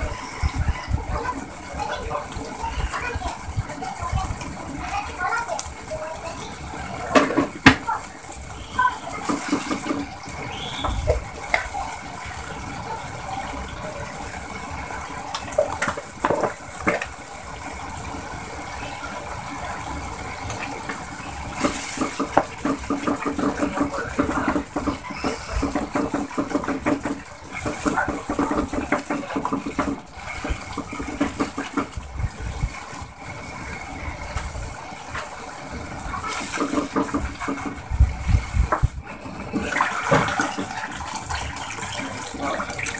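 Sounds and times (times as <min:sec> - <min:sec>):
liquid bubbling and sizzling in pot: 0:00.0 - 0:42.9.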